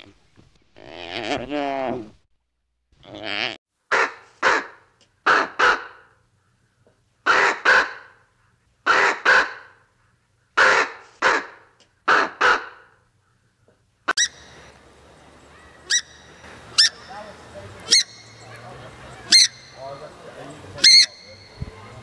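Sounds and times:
steady background hiss: 12.9s - 22.0s
crow cawing: 14.2s - 22.0s.

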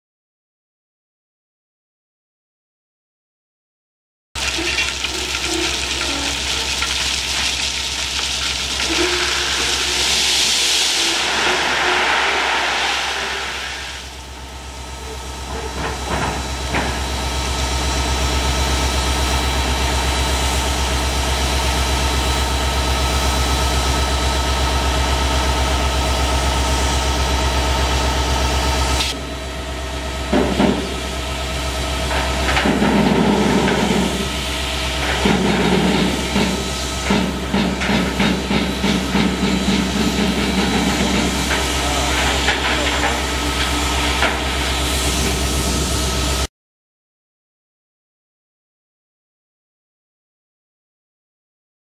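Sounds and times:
rock ballast pouring: 4.4s - 14.3s, 32.2s - 45.6s
loud air hiss: 8.9s - 14.4s
low drone: 10.8s - 15.2s.

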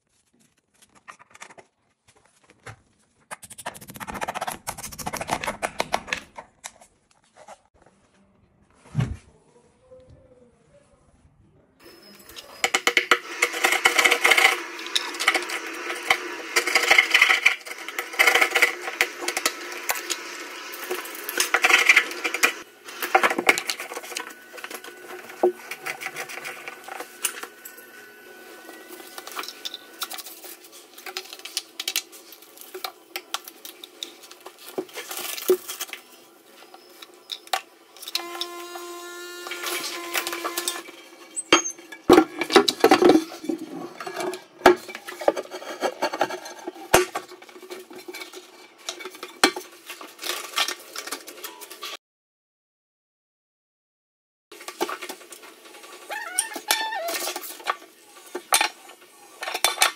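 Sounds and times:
tools scraping: 3.3s - 7.8s, 11.8s - 51.3s.

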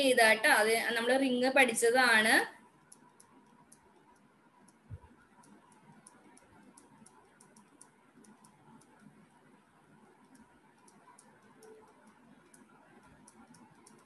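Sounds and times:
stylus tapping on tablet screen: 2.6s - 14.0s.

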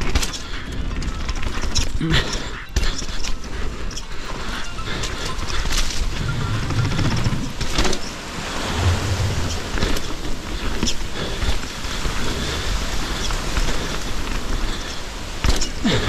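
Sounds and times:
tyres rolling on dirt: 4.2s - 16.0s
wind rushing over microphone: 6.0s - 15.3s.

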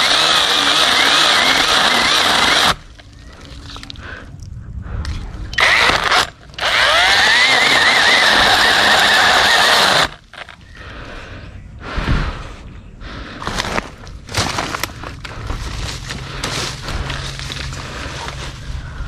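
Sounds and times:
electric chainsaw cutting wood: 0.0s - 2.8s, 5.6s - 10.5s.

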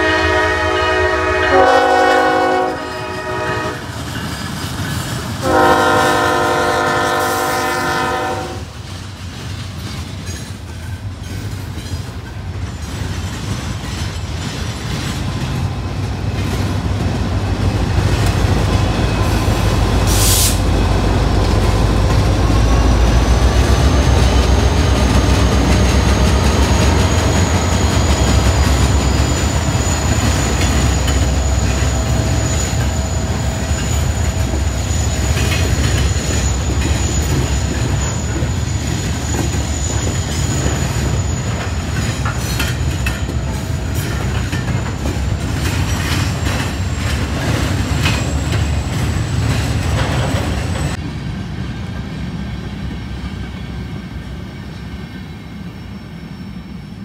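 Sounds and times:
diesel locomotive hum: 0.0s - 57.0s
train wheel squeal: 0.0s - 57.0s
wheels clicking over rail joints: 8.7s - 18.9s, 33.6s - 51.0s.

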